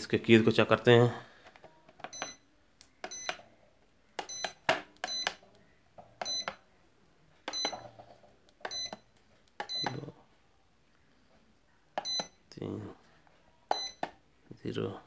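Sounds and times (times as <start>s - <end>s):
keypad clicks: 1.6s - 3.4s, 4.2s - 5.4s, 12.0s - 12.4s.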